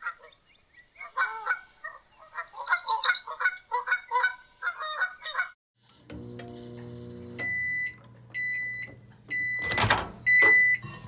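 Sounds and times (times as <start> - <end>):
geese honking: 1.0 - 5.6.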